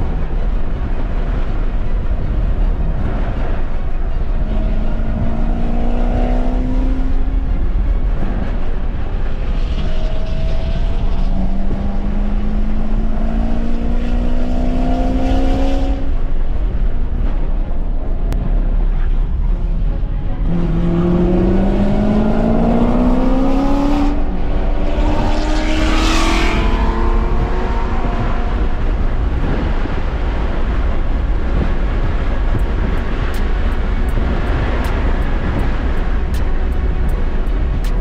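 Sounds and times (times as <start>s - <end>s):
road and wind rumble: 0.0s - 38.0s
race car engine passing: 20.4s - 37.8s.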